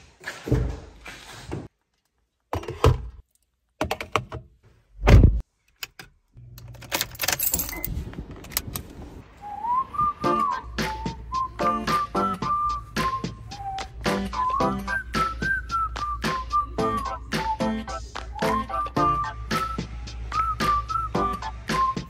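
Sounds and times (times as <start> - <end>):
seat belt buckling: 5.7 - 9.0
whistled music: 9.4 - 22.0.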